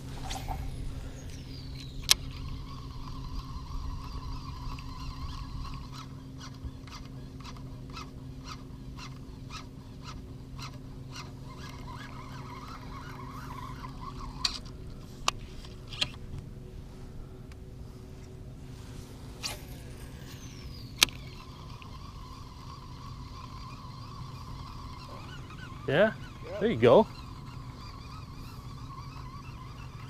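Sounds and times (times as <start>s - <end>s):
fishing line whizzing off spool: 0.0s - 16.3s, 18.1s - 30.0s
reel whirring and ticking: 0.0s - 16.6s, 17.2s - 30.0s
low hum: 0.0s - 30.0s
reel clicking into gear: 1.3s - 16.2s, 19.4s - 30.0s.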